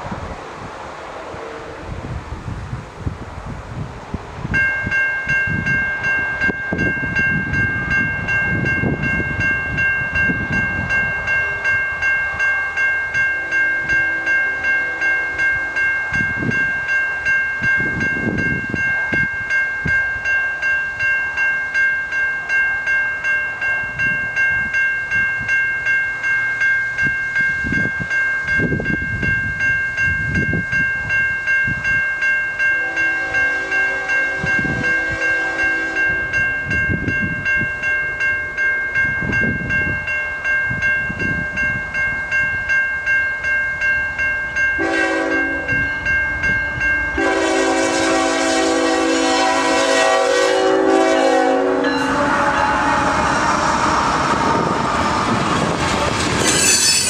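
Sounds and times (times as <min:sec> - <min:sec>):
wind buffeting microphone: 0:00.0 - 0:12.4, 0:16.0 - 0:20.3, 0:26.9 - 0:32.2, 0:34.0 - 0:42.8, 0:43.7 - 0:50.0, 0:51.6 - 0:57.0
railroad crossing bell ringing: 0:04.0 - 0:57.0.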